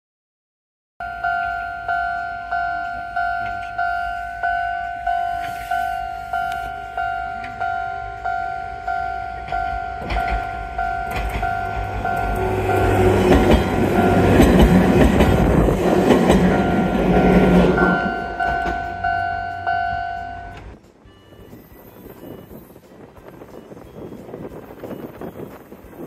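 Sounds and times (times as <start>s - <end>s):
level-crossing bell dinging: 1.0s - 25.7s
train wheels clattering on rails: 9.0s - 20.9s.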